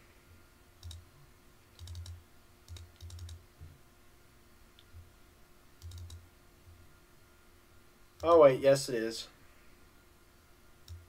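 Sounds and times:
computer mouse double-clicking: 0.8s - 1.0s, 1.8s - 3.4s, 5.8s - 6.2s.

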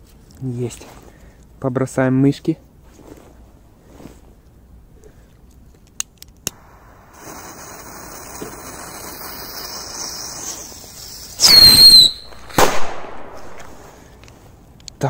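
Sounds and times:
firecracker clicks: 5.3s - 15.0s
firecracker hissing with whistle: 6.5s - 12.7s
loud descending whistle: 11.4s - 12.3s.

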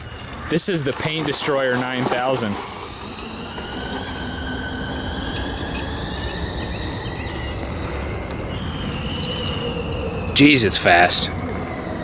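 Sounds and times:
electric motor whining: 0.0s - 12.0s
steady low noise: 2.4s - 12.0s.

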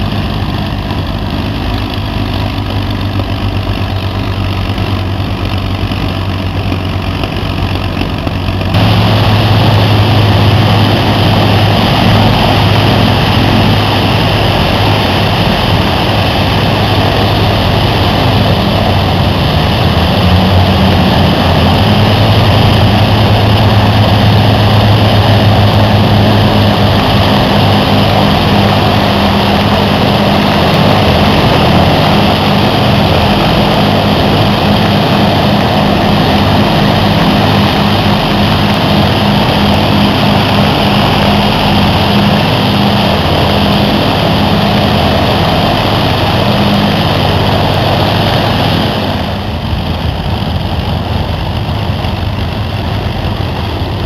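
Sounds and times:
aircraft piston engines running: 0.0s - 54.0s.

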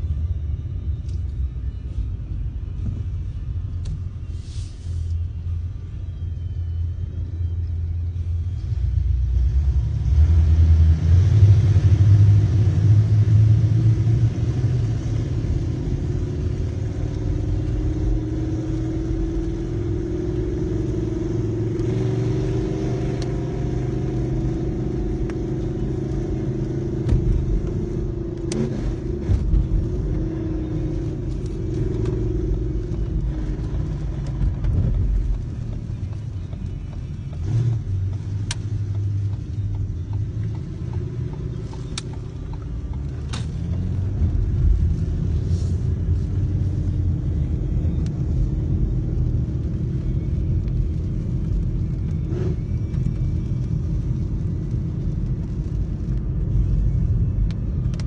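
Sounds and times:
car engine and road rumble: 0.0s - 58.0s.

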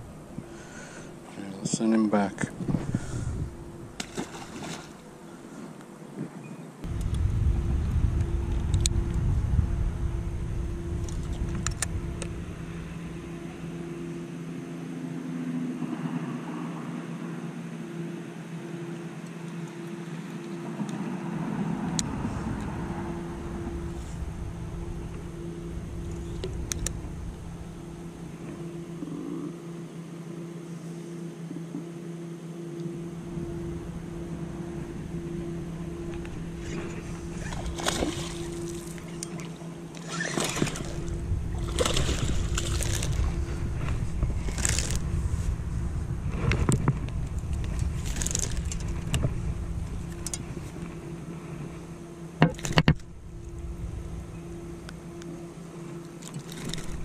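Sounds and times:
steady low hum: 0.0s - 57.0s
fish splashing in water: 37.4s - 43.4s
scattered crackles: 40.2s - 51.9s.

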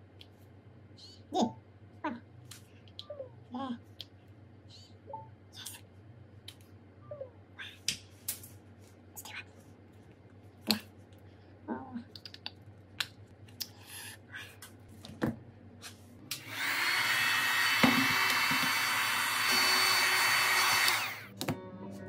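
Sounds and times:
hot-air gun blowing: 16.3s - 21.3s.

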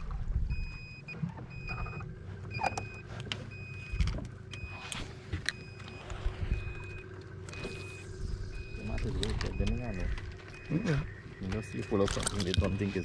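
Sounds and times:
low rumble: 0.0s - 2.5s, 5.6s - 12.4s
high electronic beep: 6.5s - 12.0s
handling clicks and knocks: 11.4s - 12.9s.

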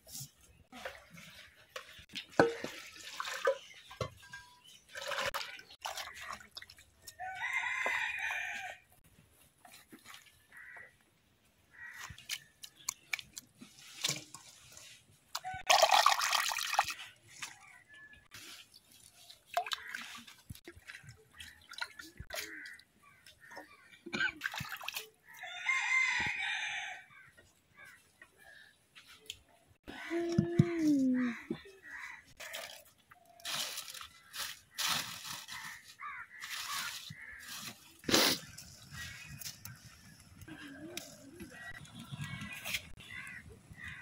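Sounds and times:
water splashing and dripping: 0.7s - 7.9s, 11.9s - 25.4s, 30.1s - 44.0s
rooster crowing: 7.2s - 8.8s, 25.4s - 27.0s.

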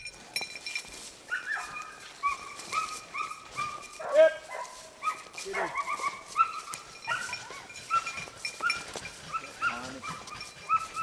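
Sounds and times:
dog whining and yipping: 1.3s - 4.1s, 5.0s - 11.0s.

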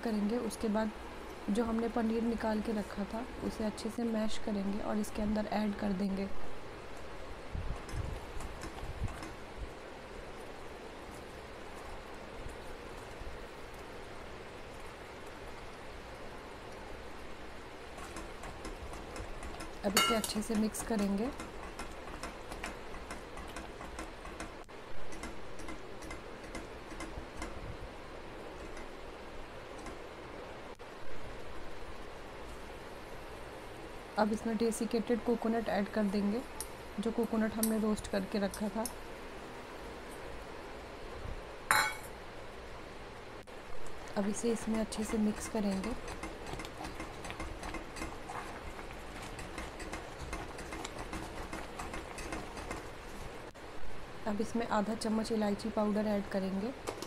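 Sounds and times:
simmering hiss: 0.0s - 50.6s
spatula ticking against pot: 44.6s - 53.0s.

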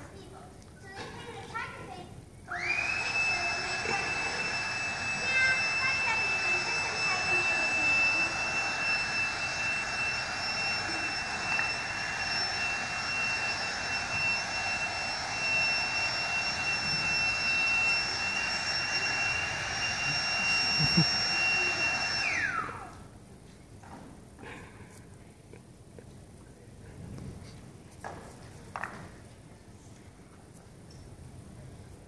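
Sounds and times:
electric fan motor whining: 2.5s - 23.2s.

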